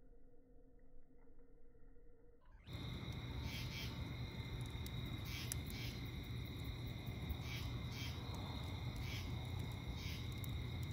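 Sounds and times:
campfire burning and crackling: 2.7 - 10.9
crickets trilling: 2.7 - 10.9
insect double chirp: 2.7 - 10.9.

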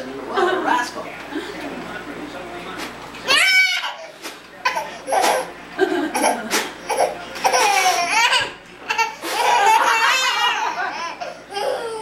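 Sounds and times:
toddler laughing: 4.6 - 12.0
adults laughing: 5.7 - 6.8, 9.2 - 11.4.

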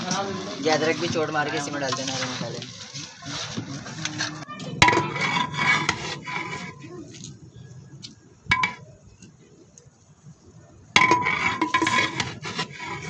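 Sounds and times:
ladle knocking cooking pot: 8.5 - 8.8, 11.0 - 12.3.

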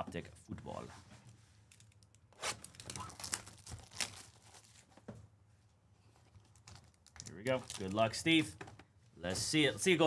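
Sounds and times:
plastic shrink wrap tearing: 2.4 - 4.8.

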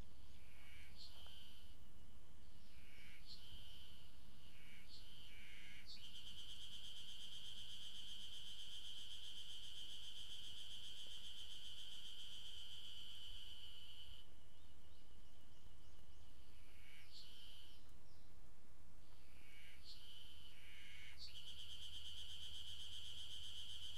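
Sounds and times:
cicadas buzzing: 2.7 - 14.3, 19.2 - 23.9.

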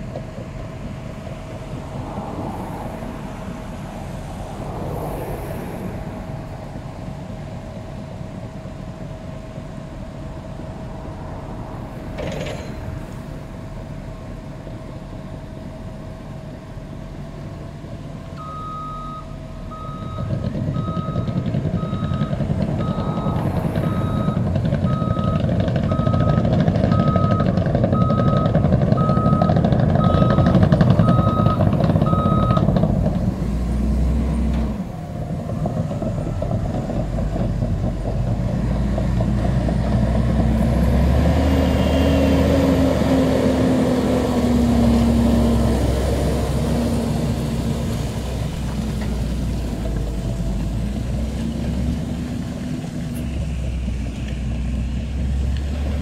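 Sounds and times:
tractor engine droning past: 0.0 - 18.0, 19.2 - 56.0
heavy diesel machinery running: 0.0 - 56.0
reversing alarm beeping: 18.4 - 32.7.

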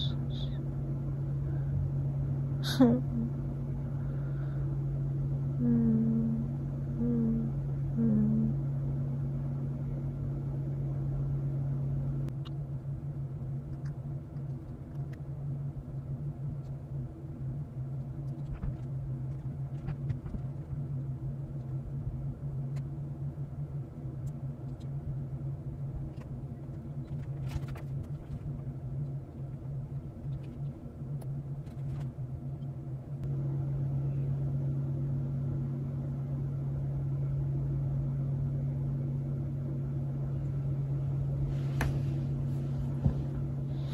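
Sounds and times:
choppy rumble: 0.0 - 43.9
low machine hum: 0.0 - 43.9.

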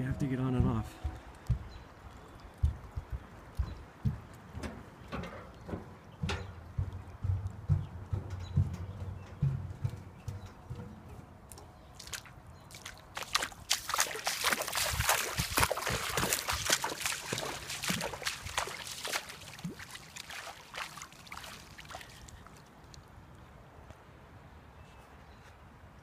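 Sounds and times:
footsteps splashing in water: 9.9 - 23.1.

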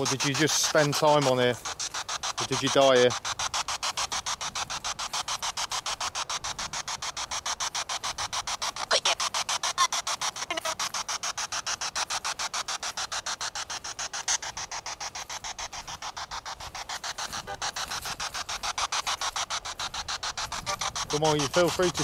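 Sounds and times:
pulsing radio static: 0.0 - 22.0
snatches of radio broadcast: 8.8 - 11.0, 14.6 - 22.0.

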